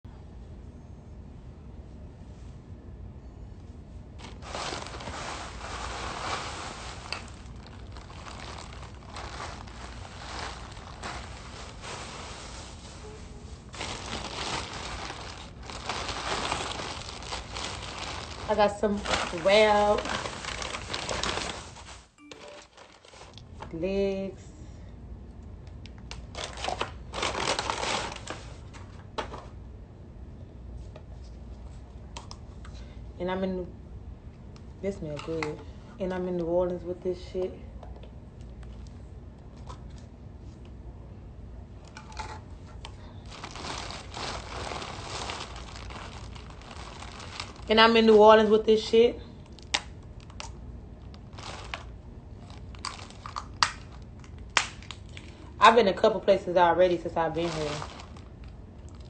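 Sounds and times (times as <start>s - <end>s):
paper bag crinkling and rustling: 4.2s - 23.7s, 26.2s - 29.4s, 43.2s - 55.4s, 56.9s - 59.0s.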